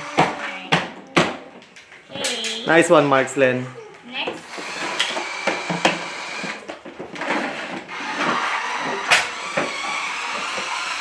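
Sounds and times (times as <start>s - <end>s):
toy truck motor whirring: 4.4s - 11.0s.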